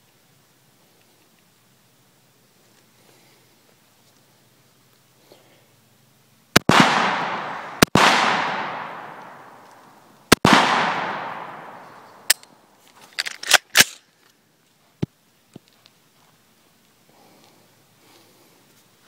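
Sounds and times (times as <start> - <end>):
rifle shots: 6.6 - 9.6, 10.3 - 12.4
rolling echo of gunshots: 6.6 - 9.6, 10.3 - 12.3
rifle action clacking: 13.2 - 14.0.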